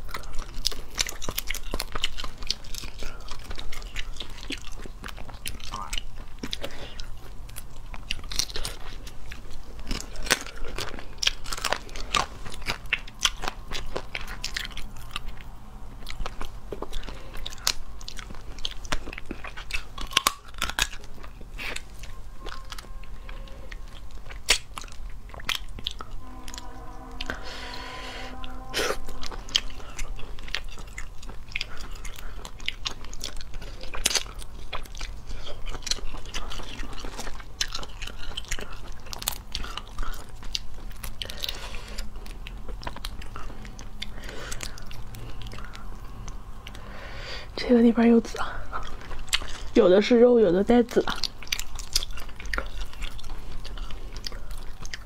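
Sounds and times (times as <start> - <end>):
lobster shell cracking and chewing: 0.0 - 26.8, 29.6 - 47.6, 48.2 - 55.0
short pitched tone: 21.8 - 23.9, 26.0 - 30.8.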